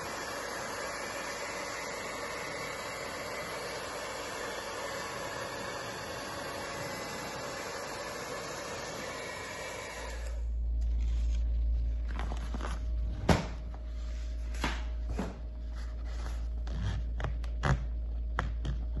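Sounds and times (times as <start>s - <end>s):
hair dryer blowing: 0.0s - 10.6s
low steady hum: 0.0s - 19.0s
toilet paper rustling and scraping: 10.8s - 13.2s, 13.8s - 17.3s.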